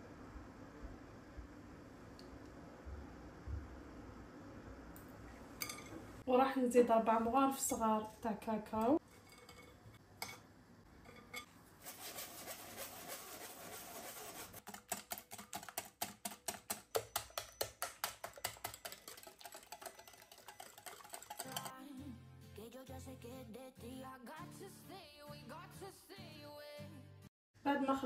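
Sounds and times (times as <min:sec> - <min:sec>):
whisk clicking against glass bowl: 0:14.6 - 0:21.7
wooden spoon tapping metal sieve: 0:14.7 - 0:21.7.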